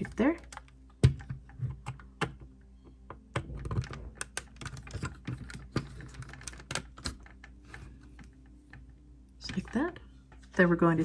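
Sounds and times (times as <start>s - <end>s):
plastic puzzle pieces clicking: 3.1s - 8.8s.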